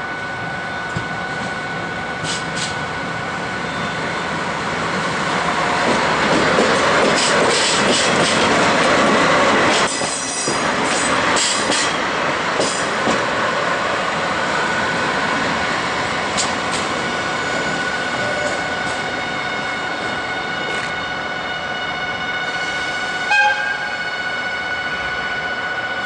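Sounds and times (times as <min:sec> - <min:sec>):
train wheels clicking over rail joints: 0:05.7 - 0:13.3, 0:16.3 - 0:17.0
wheels squealing on rails: 0:09.7 - 0:12.0, 0:16.4 - 0:21.0.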